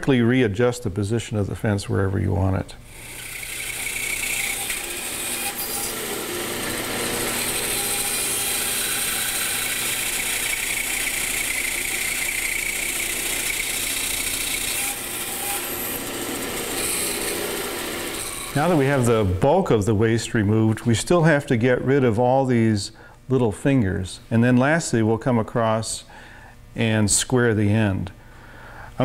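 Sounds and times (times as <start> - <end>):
bandsaw cutting wood: 2.9 - 19.3.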